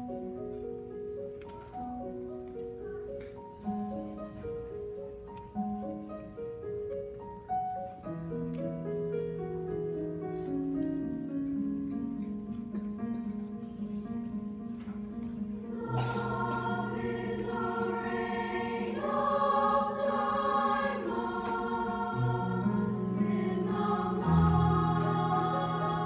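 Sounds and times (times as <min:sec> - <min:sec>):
piano accompaniment: 0:00.0 - 0:26.0
women's choir singing: 0:15.6 - 0:26.0.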